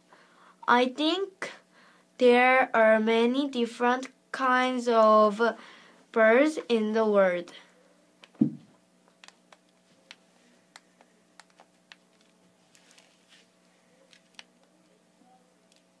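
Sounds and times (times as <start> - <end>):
low electrical hum: 0.0 - 16.0
sharp clicks and taps: 8.2 - 12.3
dull thump: 8.4 - 8.7.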